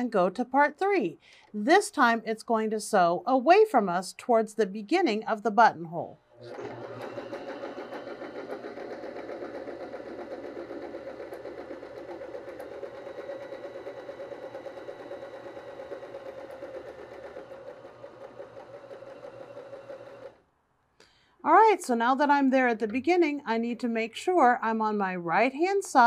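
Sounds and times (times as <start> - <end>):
sewing machine running: 6.4 - 20.4.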